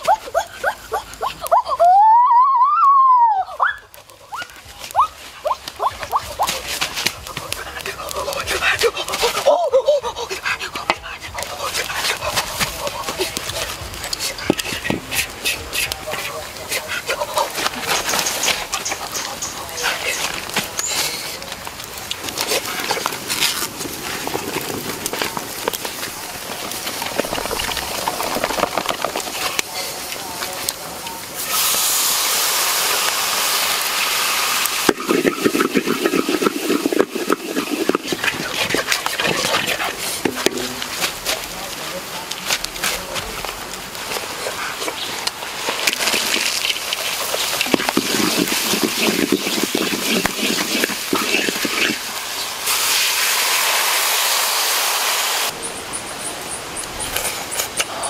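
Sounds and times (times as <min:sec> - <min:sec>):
spices crackling in oil: 0:00.0 - 0:58.0
hiss of steam: 0:31.2 - 0:41.7, 0:44.0 - 0:56.6
liquid sizzling in hot wok: 0:31.3 - 0:41.5, 0:45.0 - 0:55.6.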